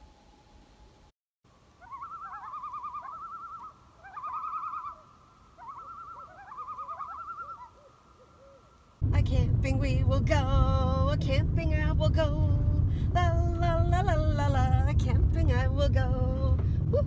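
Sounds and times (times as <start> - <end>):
loon tremolo call: 1.8 - 8.8
loon wailing: 5.6 - 8.8.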